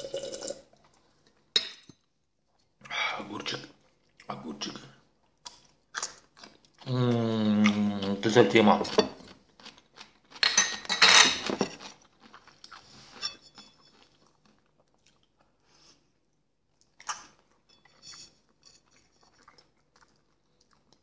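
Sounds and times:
soft chewing: 3.6 - 10.5, 11.6 - 21.0.

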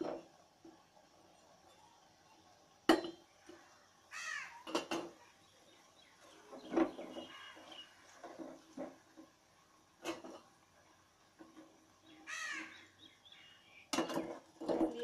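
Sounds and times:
metal utensil clinking on pan: 2.9 - 3.3
bird harsh call: 4.1 - 4.6, 6.6 - 7.9, 12.2 - 13.8.

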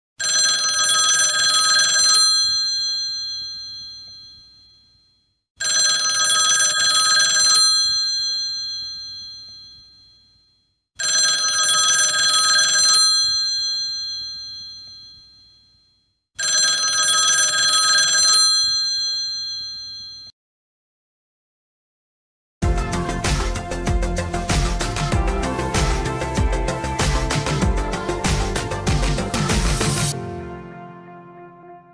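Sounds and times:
telephone bell ringing: 0.2 - 20.3.

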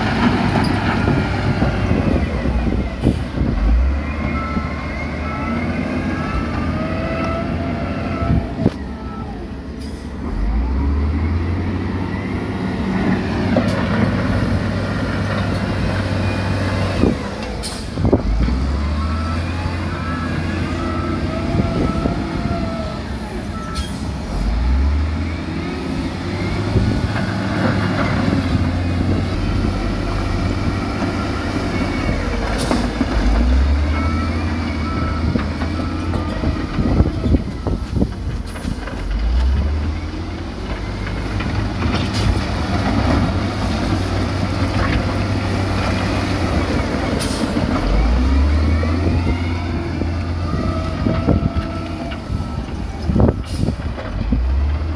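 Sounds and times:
diesel engines revving: 0.0 - 54.9
reversing alarm beeping: 3.6 - 8.4, 18.6 - 25.7, 30.1 - 38.1, 48.0 - 53.8.

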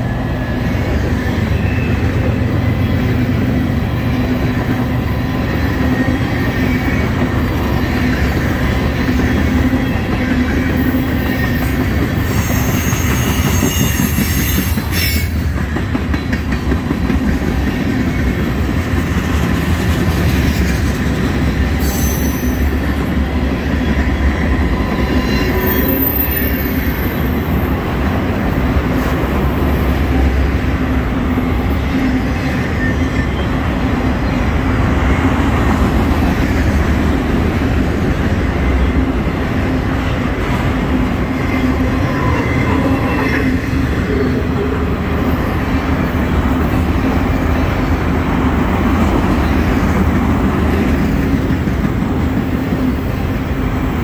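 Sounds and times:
freight train wheels rumbling on rail: 0.0 - 54.0
high-pitched wheel squeals: 9.6 - 15.4, 24.2 - 27.4.

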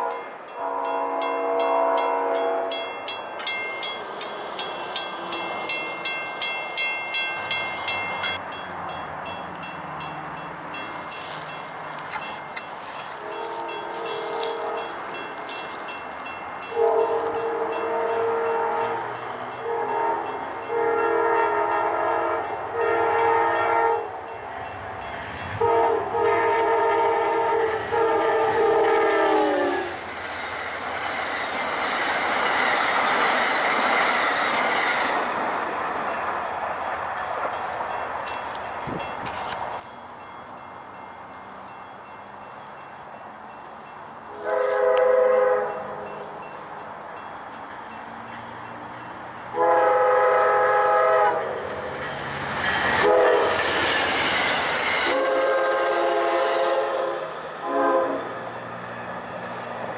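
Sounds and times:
train horn blasts: 0.0 - 3.0, 13.1 - 15.0, 16.6 - 24.3, 25.5 - 30.0, 44.3 - 46.4, 49.5 - 51.7, 52.9 - 53.6, 55.0 - 58.4
crossing bell dinging: 0.0 - 26.0, 35.8 - 45.0, 45.6 - 50.3
train wheels rumbling on rail: 0.0 - 59.9.

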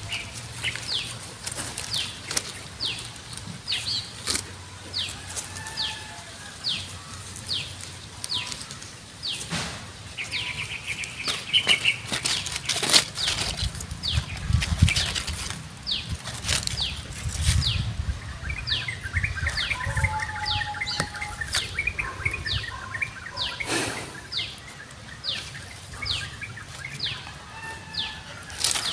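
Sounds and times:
bird high falling call: 18.7 - 24.5.

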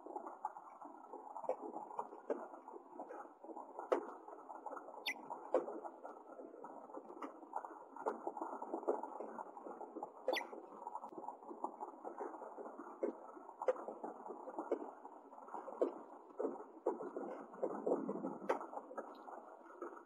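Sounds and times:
short squeaky bird chirps: 10.3 - 10.5.

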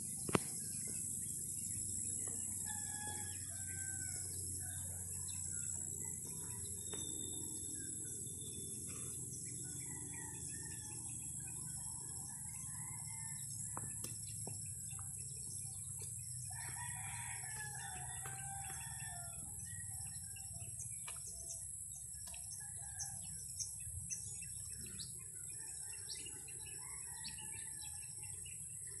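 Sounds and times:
rooster crowing: 2.6 - 5.0, 16.5 - 19.9, 25.7 - 28.0.

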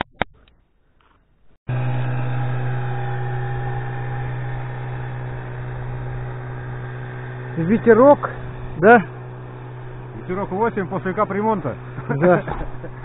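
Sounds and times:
outboard motor droning: 1.7 - 13.0.

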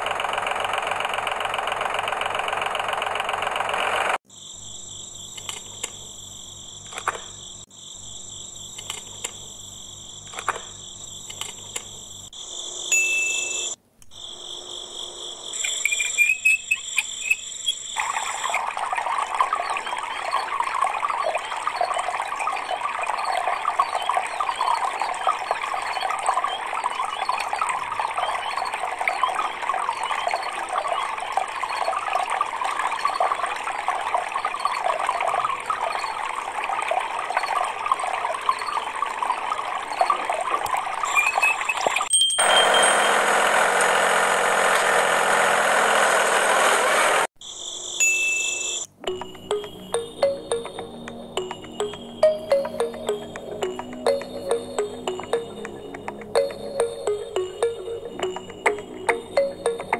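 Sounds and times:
high-pitched tones: 48.8 - 59.9.

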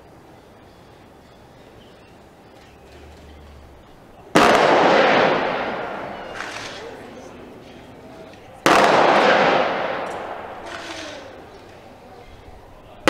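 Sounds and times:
rifle volley crack: 2.7 - 13.0.

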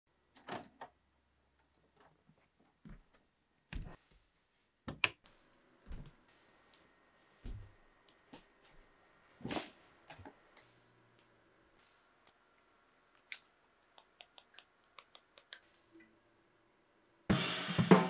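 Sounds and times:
soft footsteps on floor: 2.3 - 4.7, 5.3 - 8.9.

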